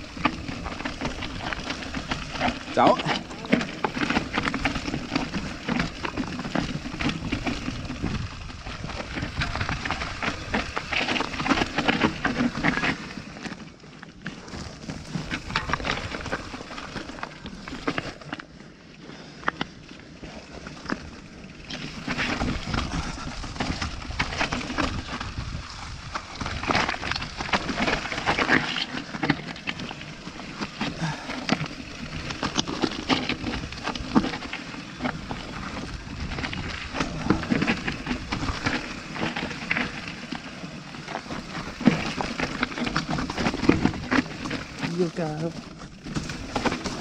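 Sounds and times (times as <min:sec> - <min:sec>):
bike rattles and knocks: 0:00.0 - 0:13.6, 0:14.2 - 0:18.3, 0:20.8 - 0:47.0
tyres crunching over loose stones: 0:00.0 - 0:18.5, 0:20.6 - 0:47.0.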